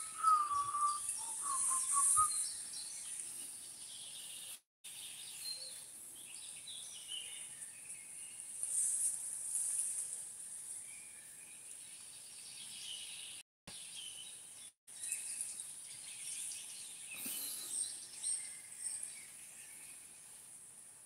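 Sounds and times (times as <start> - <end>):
steady high hiss: 0.0 - 2.5
birds chirping: 0.0 - 8.7.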